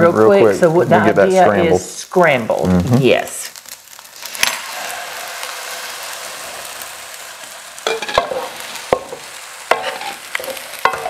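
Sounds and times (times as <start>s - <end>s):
eggs sizzling in skillet: 0.0s - 11.0s
wooden spoon scraping pan: 9.7s - 11.0s.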